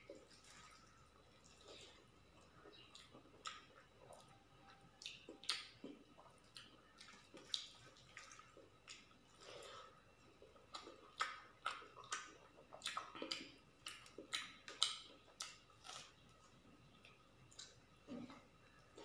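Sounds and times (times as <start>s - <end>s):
fingers squishing wet food: 2.7s - 9.5s.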